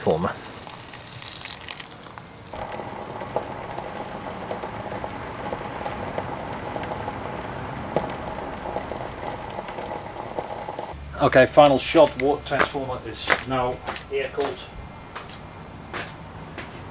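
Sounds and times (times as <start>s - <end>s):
crackles and ticks in water: 0.0s - 11.0s
transformer humming: 0.0s - 16.9s.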